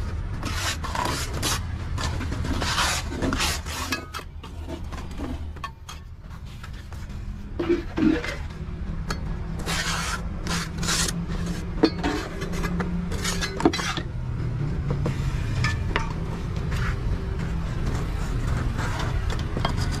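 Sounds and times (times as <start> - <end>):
trowel scraping wet concrete: 0.4 - 8.5, 9.6 - 14.1.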